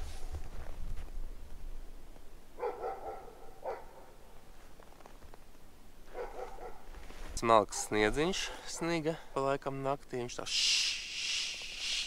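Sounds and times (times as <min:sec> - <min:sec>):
dog barking: 0:02.6 - 0:04.2, 0:06.1 - 0:06.9, 0:07.7 - 0:08.0, 0:08.7 - 0:09.0.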